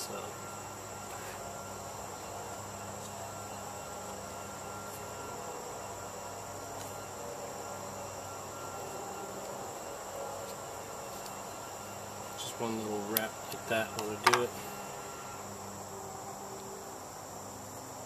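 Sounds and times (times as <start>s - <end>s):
insects chirring: 0.0s - 18.0s.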